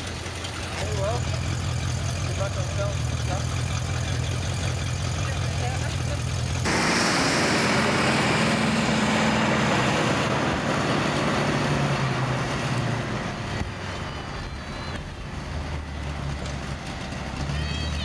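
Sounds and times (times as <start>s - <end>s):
car passing on street: 6.6s - 18.0s.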